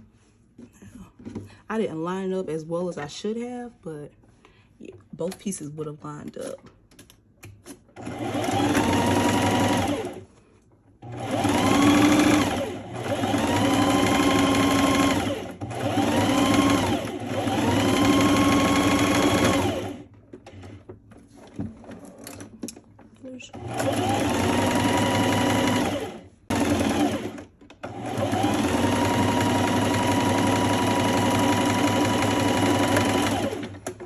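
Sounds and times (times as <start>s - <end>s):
sewing machine stitching: 8.0s - 10.2s, 11.0s - 20.8s, 23.5s - 34.0s.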